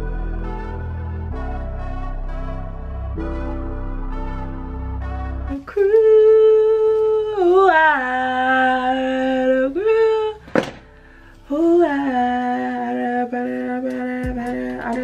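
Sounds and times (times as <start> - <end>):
woman singing wordless notes: 5.5 - 10.5, 11.4 - 15.0.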